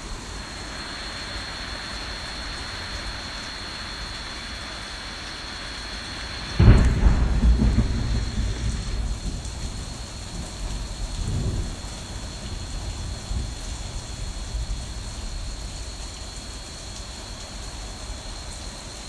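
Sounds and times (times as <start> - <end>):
rain falling: 0.0 - 19.0
thunder clap and rumble: 6.3 - 15.8.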